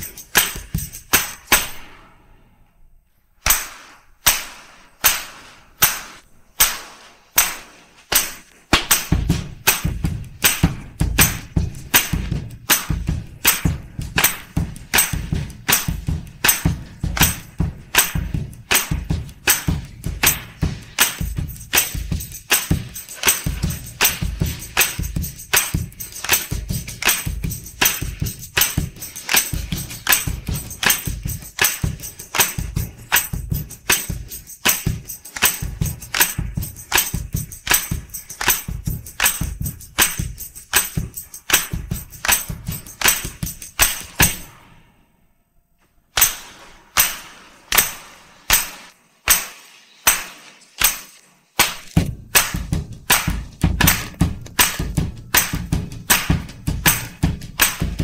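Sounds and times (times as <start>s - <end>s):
drum beat: 0.0s - 1.8s, 3.5s - 44.6s, 46.2s - 58.0s
tambourine jingles: 0.0s - 2.0s, 3.5s - 44.7s, 46.2s - 58.0s.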